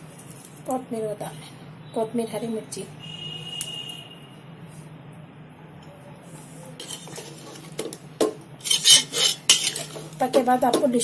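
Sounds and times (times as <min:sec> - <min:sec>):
ladle scraping and clinking in pot: 0:06.8 - 0:08.0, 0:08.6 - 0:10.9.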